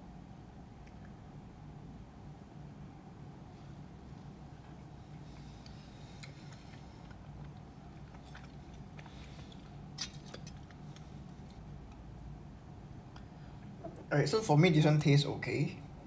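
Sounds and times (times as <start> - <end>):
low steady hum: 0.0 - 16.0
person chewing food: 4.8 - 12.0.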